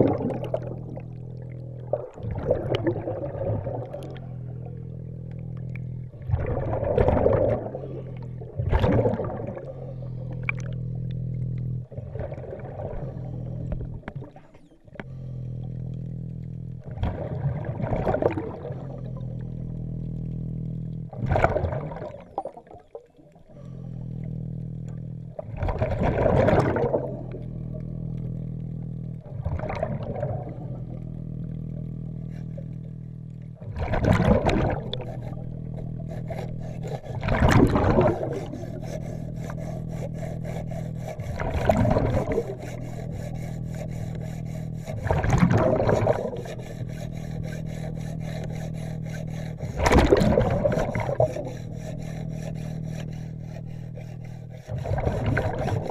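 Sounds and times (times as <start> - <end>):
steady low drone: 0.0 - 55.9
underwater exhaled bubbles: 0.0 - 55.9.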